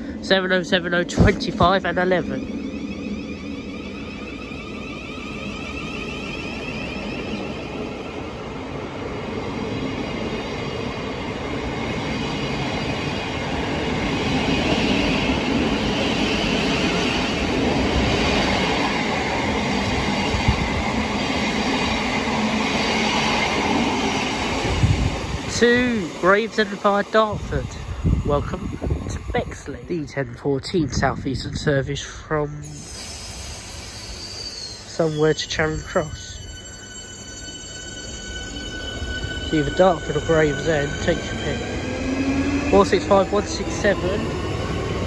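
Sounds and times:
train wheels rumbling on rails: 0.0s - 45.0s.

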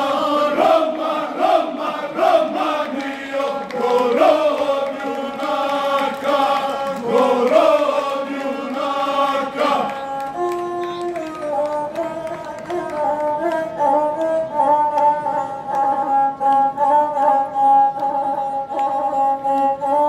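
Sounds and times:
men singing together: 0.0s - 10.2s.

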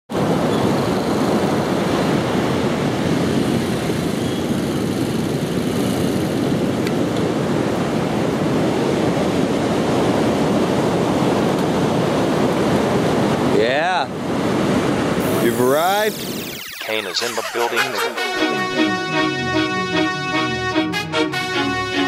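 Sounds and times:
wind: 0.1s - 18.0s
ocean surf: 0.2s - 4.1s.

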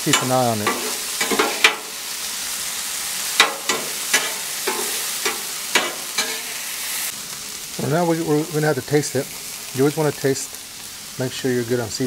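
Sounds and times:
meat sizzling on griddle: 0.0s - 12.0s
metal spatulas scraping and clinking: 0.1s - 1.9s, 3.4s - 6.6s.

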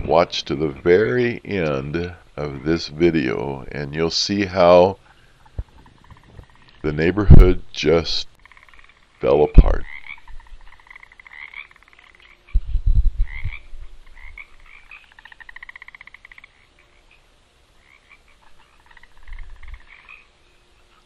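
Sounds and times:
frogs trilling in chorus: 0.0s - 7.1s, 8.4s - 12.6s, 13.2s - 21.0s
deep low thumps: 12.6s - 14.2s.

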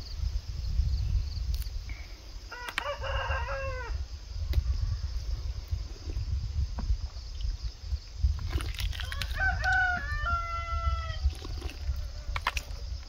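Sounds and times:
rooster crowing: 2.5s - 4.0s, 9.2s - 11.3s.

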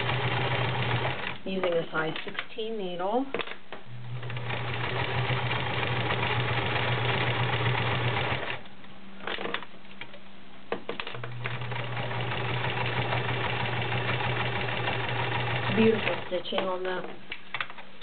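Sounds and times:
sewing machine running: 0.0s - 1.4s, 4.1s - 8.6s, 11.3s - 16.4s.

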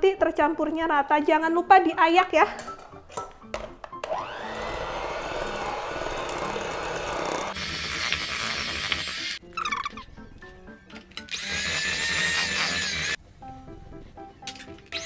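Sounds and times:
electric hand mixer whirring: 4.0s - 9.4s, 11.3s - 13.2s.

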